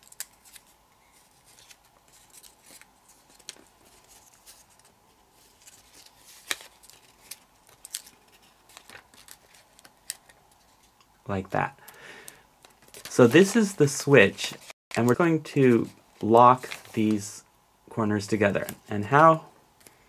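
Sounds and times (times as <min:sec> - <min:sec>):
paper rustling and crackling: 0:00.0 - 0:11.0, 0:12.6 - 0:17.2.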